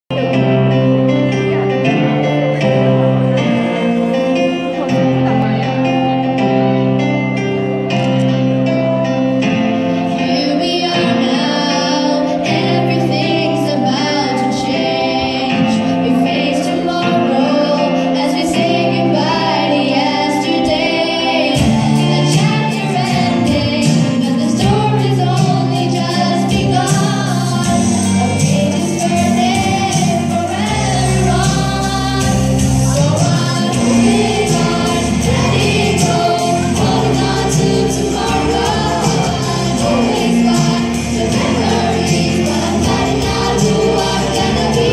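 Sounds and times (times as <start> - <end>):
instrumental accompaniment over loudspeakers: 0.1 - 44.9
choir singing: 9.8 - 44.9.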